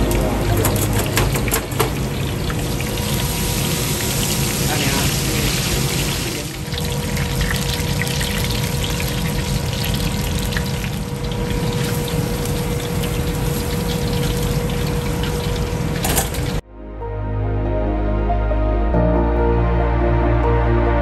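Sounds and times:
deep-frying sizzle with crackles: 0.8 - 16.6.

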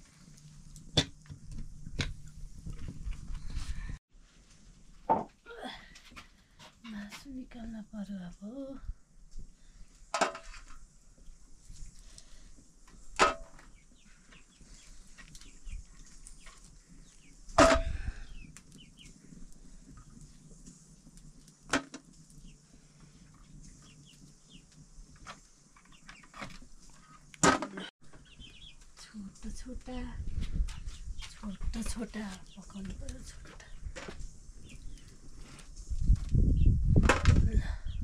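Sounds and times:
small birds chirping: 13.6 - 21.5, 22.1 - 27.4, 28.0 - 38.0.

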